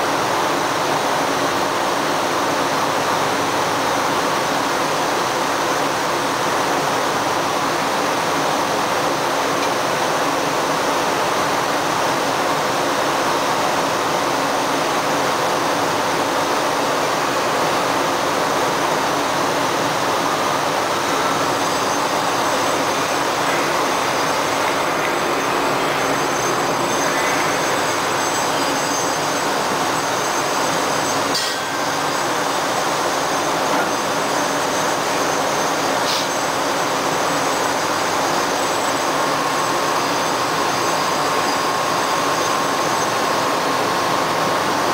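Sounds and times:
faint high whines: 13.4 - 44.9.

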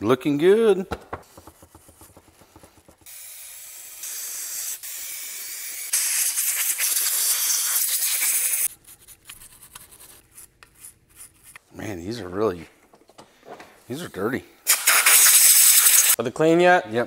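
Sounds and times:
compressed air hissing: 2.5 - 8.7, 14.6 - 16.2.

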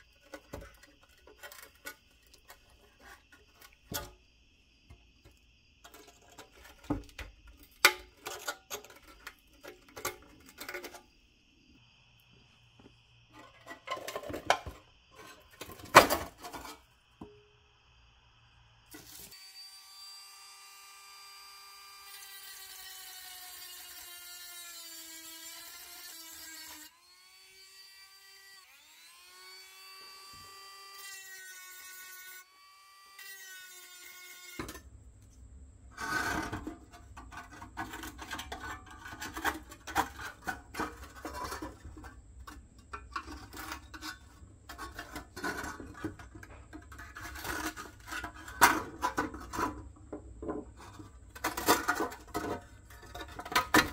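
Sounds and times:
screwdriver scraping and tapping metal: 0.0 - 4.1, 5.2 - 11.0, 13.4 - 16.8, 36.0 - 53.9.

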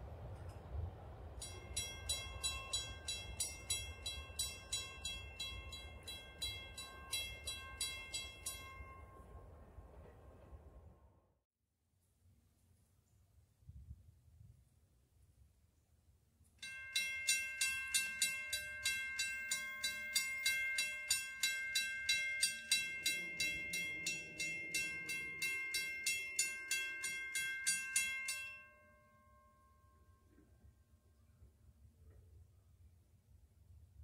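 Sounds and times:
railroad crossing bell ringing: 1.2 - 11.0, 16.6 - 30.8.

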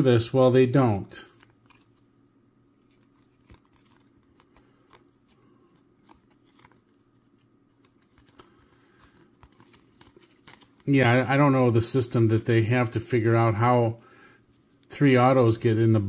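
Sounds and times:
low room hum: 0.0 - 16.0
cards being flipped through: 1.2 - 2.1, 2.7 - 12.6.

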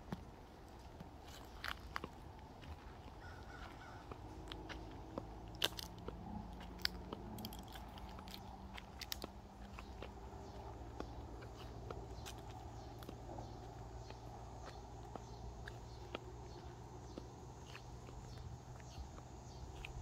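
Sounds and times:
low steady rumble: 0.0 - 20.0
footsteps crunching on dry leaves: 0.4 - 20.0.

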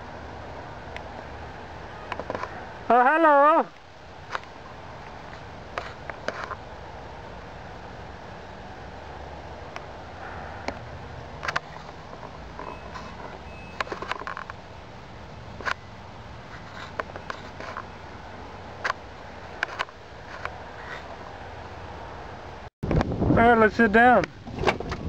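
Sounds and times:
steady low rumble: 3.6 - 23.7
faint high beeps: 12.6 - 13.9.

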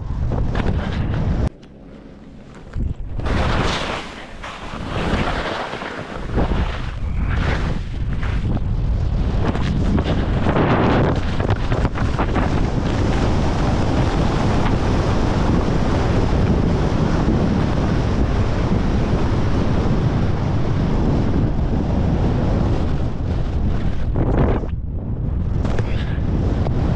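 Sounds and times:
wind buffeting microphone: 0.0 - 1.6, 2.6 - 26.9
skis scraping on snow: 2.2 - 19.7, 22.0 - 24.7.

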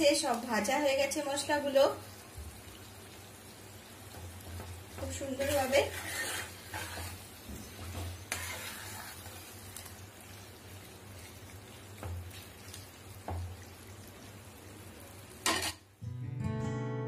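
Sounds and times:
masala sizzling in a pan: 0.0 - 16.0
spatula scraping pan: 4.5 - 10.0, 15.4 - 15.8.

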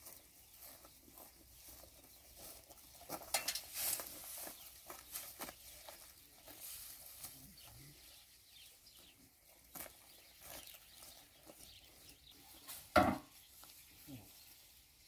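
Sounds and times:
pitchfork rustling cut alfalfa: 2.4 - 4.6.

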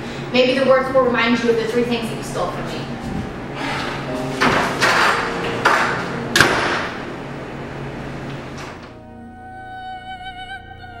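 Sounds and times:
steady low hum: 0.0 - 11.0
door opening: 3.0 - 7.0, 8.2 - 9.0
door shutting with a bang: 4.3 - 7.0.

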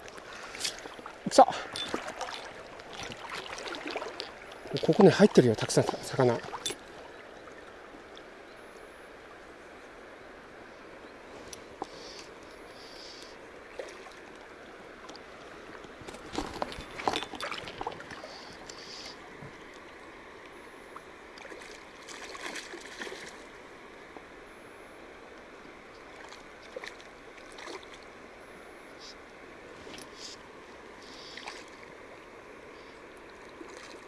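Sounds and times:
water splashing: 0.0 - 7.8, 13.6 - 14.4, 15.0 - 20.0, 21.3 - 23.6, 26.1 - 28.1, 31.0 - 31.9, 33.5 - 34.0
river water flowing: 0.0 - 34.0.

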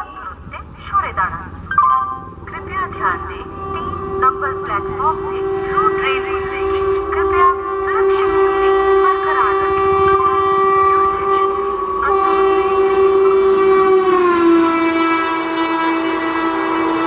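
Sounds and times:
rush of passing train coaches: 0.0 - 17.0
train horn blast: 2.2 - 17.0.

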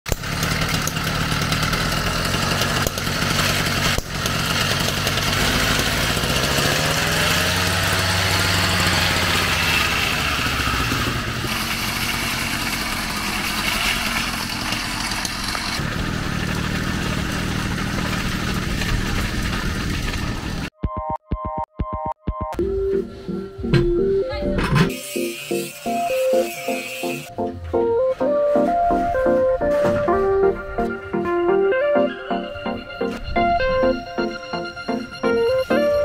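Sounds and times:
two-stroke engine running: 0.1 - 20.7.

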